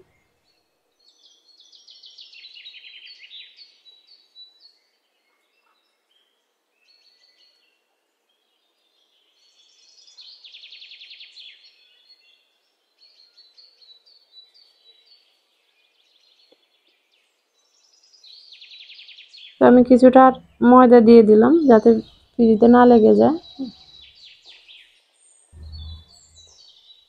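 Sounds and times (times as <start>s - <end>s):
small birds trilling: 8.5s - 27.0s
short bird chirps: 23.4s - 26.8s.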